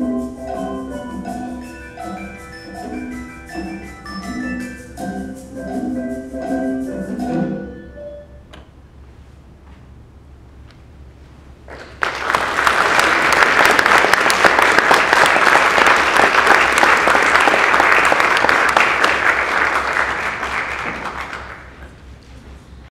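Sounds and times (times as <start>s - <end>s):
audience applauding: 11.7s - 21.8s.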